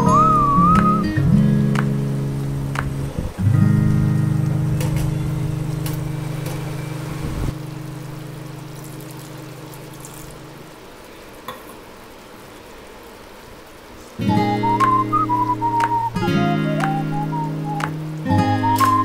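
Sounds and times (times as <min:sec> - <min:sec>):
background music chord: 0:00.0 - 0:02.6, 0:14.3 - 0:19.0
gravy simmering and bubbling: 0:07.0 - 0:12.8.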